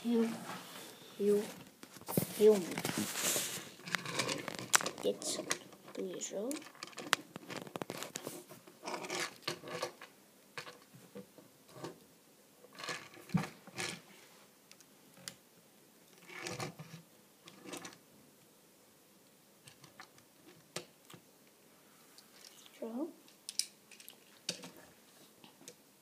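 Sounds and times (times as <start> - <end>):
plastic parts scraping: 1.2 - 10.9, 12.7 - 14.0.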